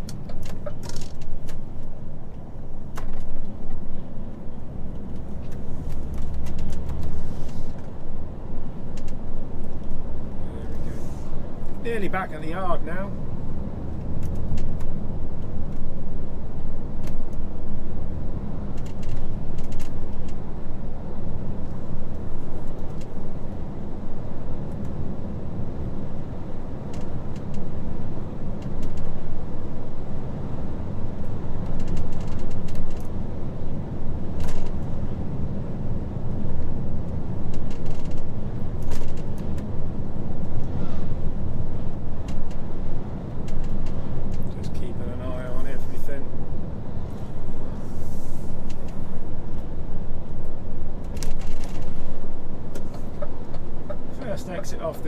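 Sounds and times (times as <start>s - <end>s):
road noise: 0.0s - 55.0s
truck diesel engine rumbling: 0.0s - 55.0s.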